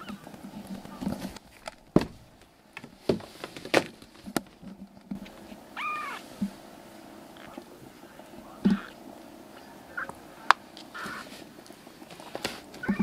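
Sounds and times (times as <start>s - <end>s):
sharp knocks and bumps: 0.0s - 5.3s
kitten mewing: 5.8s - 6.2s, 8.7s - 9.0s, 10.9s - 11.3s.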